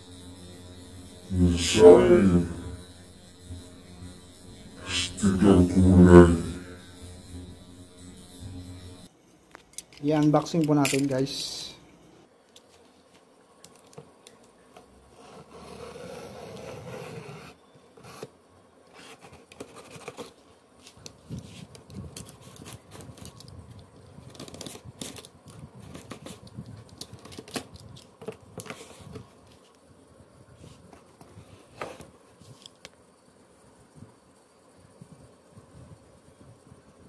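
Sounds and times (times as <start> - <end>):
blade scraping cardboard: 15.1 - 18.3.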